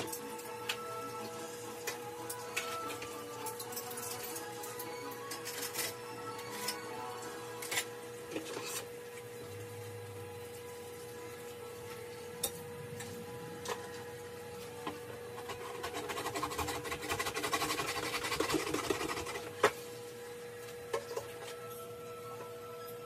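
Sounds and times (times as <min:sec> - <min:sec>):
rapid scrubbing of dishes: 0:15.4 - 0:19.8.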